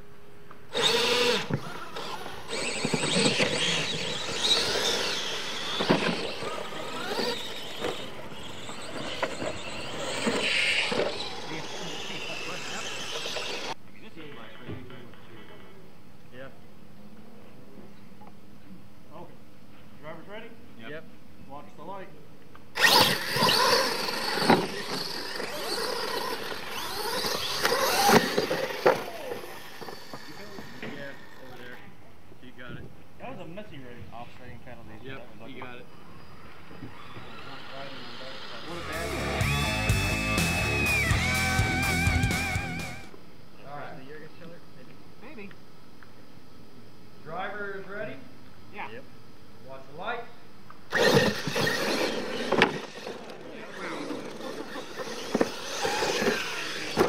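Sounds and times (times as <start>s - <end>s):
tyres on dirt: 0.5s - 13.8s, 22.6s - 31.9s, 50.8s - 57.0s
toy truck motors whining: 0.7s - 13.8s, 22.7s - 32.0s, 35.8s - 43.2s, 50.9s - 57.0s.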